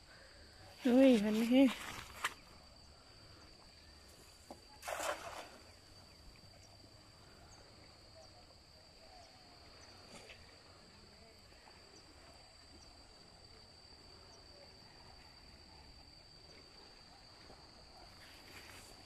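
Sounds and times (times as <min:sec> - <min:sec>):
cast net splashing into water: 0:04.7 - 0:05.9.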